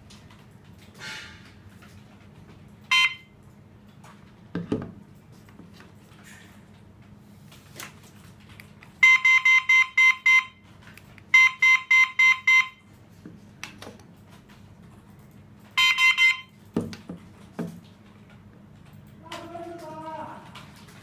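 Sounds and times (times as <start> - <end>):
high-pitched siren beeps: 2.9 - 3.3, 9.0 - 10.6, 11.4 - 12.8, 15.8 - 16.5.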